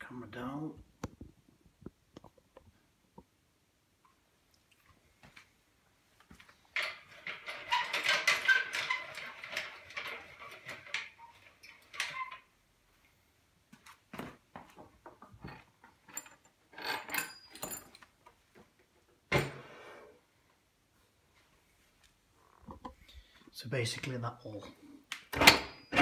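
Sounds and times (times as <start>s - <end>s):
clattering of wood and metal: 6.6s - 12.4s.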